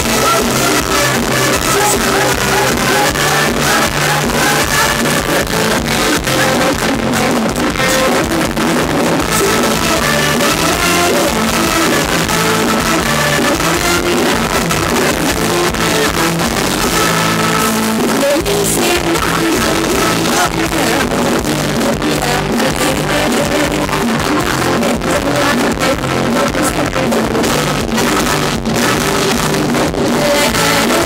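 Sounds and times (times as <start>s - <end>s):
electric guitar: 0.0s - 31.0s
live dance band music: 0.0s - 31.0s
woman singing: 18.2s - 31.0s.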